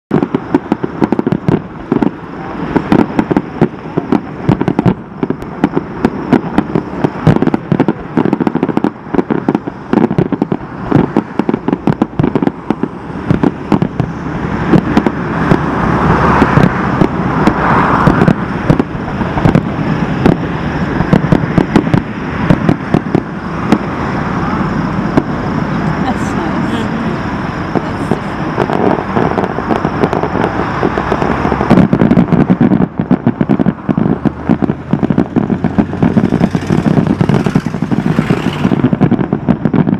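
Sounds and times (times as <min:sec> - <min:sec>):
fireworks bangs and crackling: 0:00.1 - 0:39.9.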